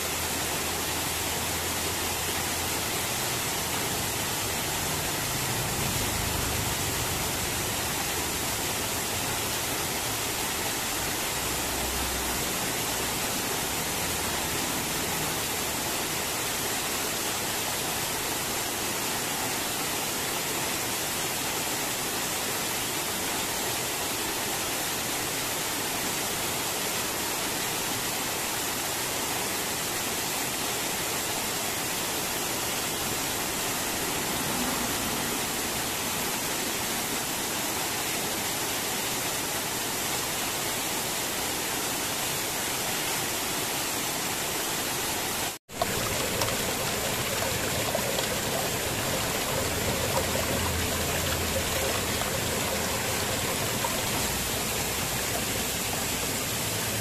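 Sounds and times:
waterfall splashing over rocks: 0:00.0 - 0:57.0
water running over stones: 0:43.4 - 0:57.0.

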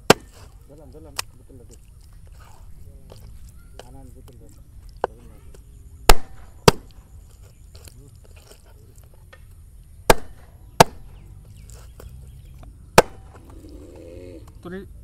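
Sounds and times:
cleaver chopping on wooden board: 0:00.0 - 0:00.4, 0:06.1 - 0:07.0, 0:10.1 - 0:11.2, 0:13.0 - 0:13.4.

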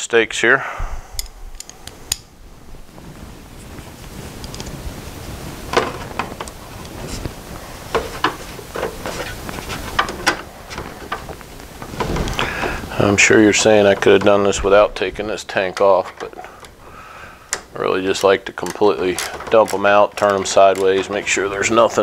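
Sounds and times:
hand tool clicks and knocks: 0:01.2 - 0:02.2, 0:17.5 - 0:21.4.

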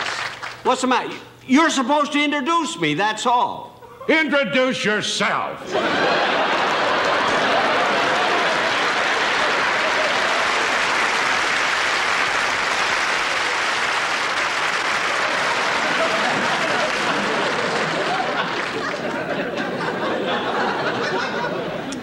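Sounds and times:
audience applauding: 0:00.0 - 0:00.7, 0:05.8 - 0:21.4.

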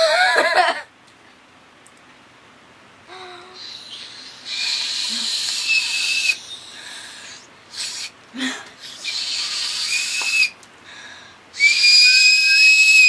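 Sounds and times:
breathy whistling: 0:03.6 - 0:08.2, 0:08.8 - 0:10.6, 0:11.6 - 0:13.0.

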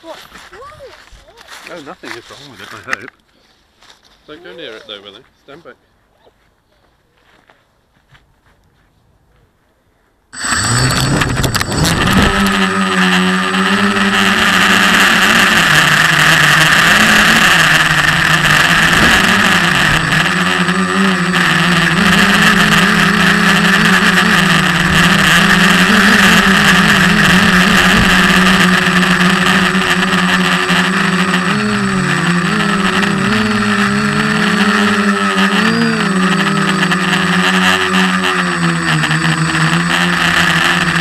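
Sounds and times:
quadcopter motors buzzing: 0:10.4 - 0:41.0.

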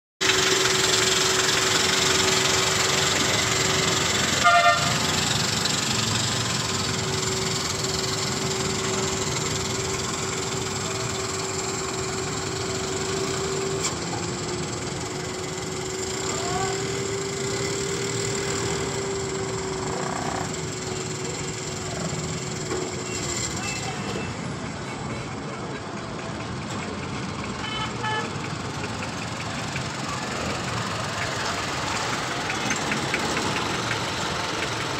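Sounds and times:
truck engine pulling away: 0:00.2 - 0:24.8, 0:25.4 - 0:34.9
short horn toot: 0:04.4 - 0:05.0.

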